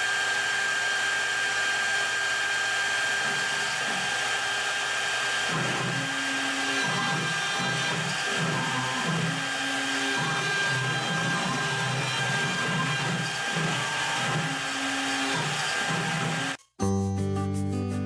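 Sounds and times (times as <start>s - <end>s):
cnc router spindle whining: 0.0s - 16.6s
machine axes moving: 5.4s - 16.6s.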